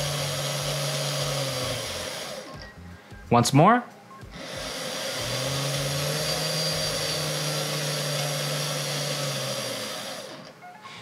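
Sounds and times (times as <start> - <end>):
small electric motor whirring: 0.0 - 2.7, 4.3 - 10.6.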